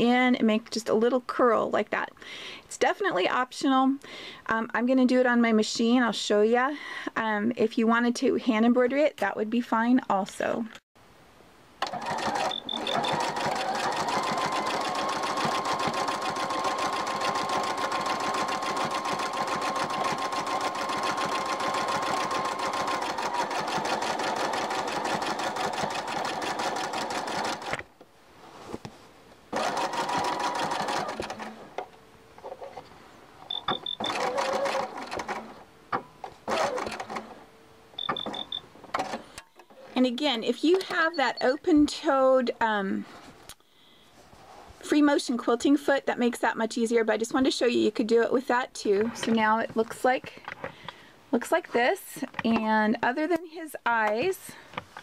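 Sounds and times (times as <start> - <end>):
sewing machine stitching: 11.8 - 27.9, 29.5 - 31.7, 33.6 - 35.6, 36.4 - 37.4, 38.0 - 39.3
short high beeps: 33.5 - 34.1, 38.0 - 38.6.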